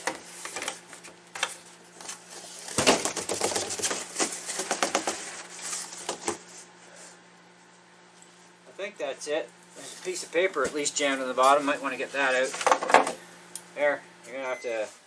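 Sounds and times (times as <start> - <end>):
paper packing rustling: 0.0 - 6.7.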